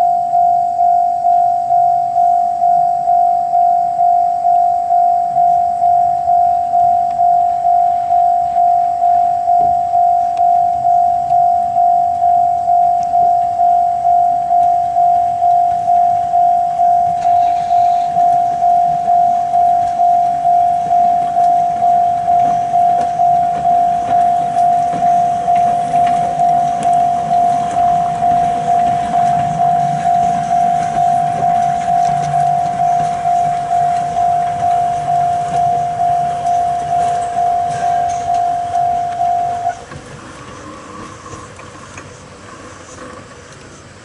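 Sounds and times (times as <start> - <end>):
level crossing bell ringing: 0.0 - 39.8
steam locomotive rumble: 1.4 - 44.0.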